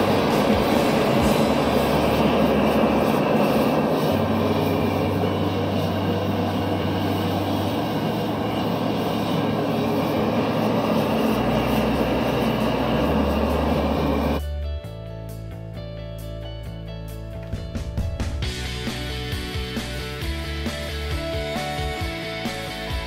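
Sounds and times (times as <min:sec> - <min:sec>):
gas forge burner roaring: 0:00.0 - 0:14.4.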